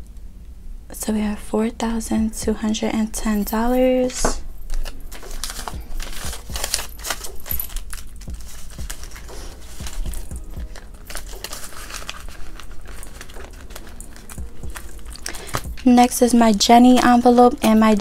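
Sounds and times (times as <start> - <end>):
banknotes rustling and flicking: 2.5 - 18.0
bangles clinking: 3.2 - 18.0
plastic envelope crinkling: 4.6 - 18.0.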